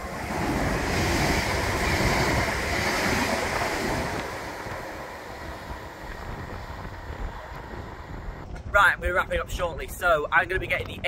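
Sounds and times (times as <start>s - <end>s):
electric train passing: 0.0s - 8.5s.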